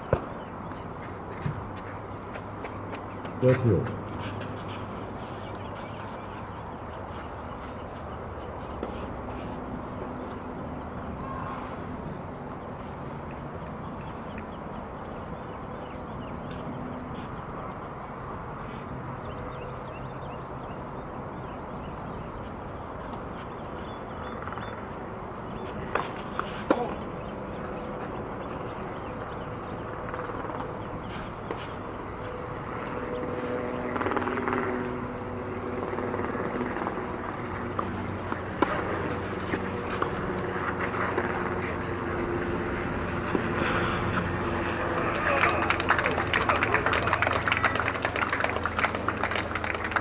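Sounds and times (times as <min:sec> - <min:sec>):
distant engine hum: 0:00.0 - 0:50.0
tennis ball bounced and struck: 0:25.8 - 0:27.1, 0:37.7 - 0:41.6.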